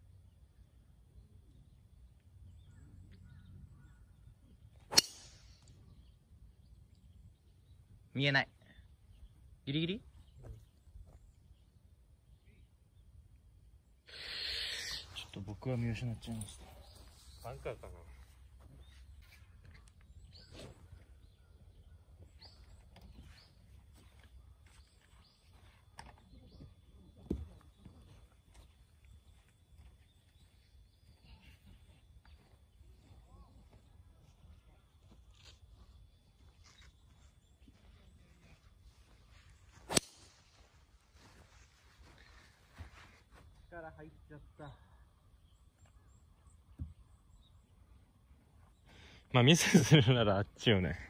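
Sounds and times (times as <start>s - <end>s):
bird chirping: 0.0s - 50.9s
golf club striking ball: 4.9s - 5.5s.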